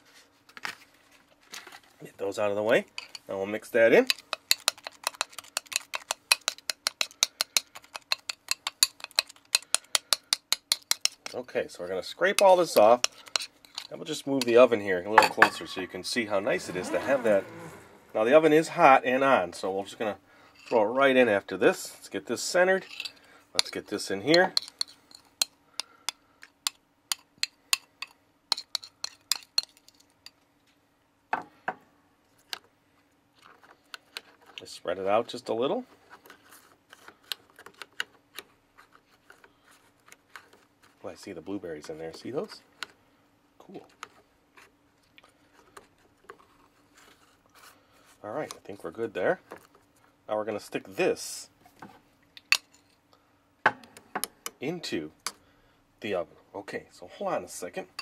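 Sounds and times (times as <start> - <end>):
spoon scraping glass bowl: 15.2 - 18.3.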